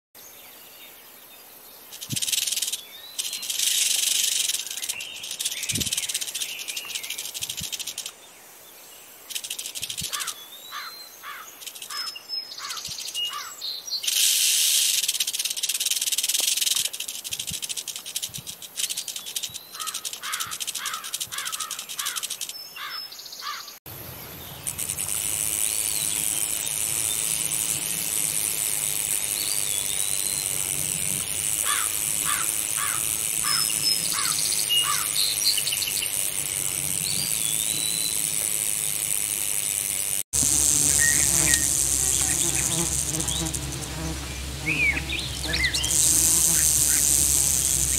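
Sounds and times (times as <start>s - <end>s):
rattlesnake tail rattling: 1.9s - 8.1s, 9.3s - 10.3s, 14.1s - 22.6s, 24.6s - 47.9s
bird chirps: 40.5s - 47.9s.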